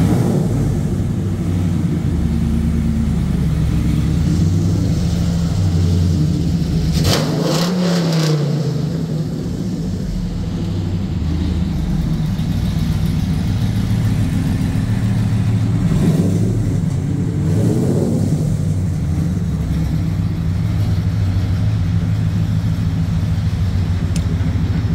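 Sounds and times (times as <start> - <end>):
truck engine idling: 0.0 - 7.0, 9.3 - 24.9
engine revving: 0.0 - 21.6.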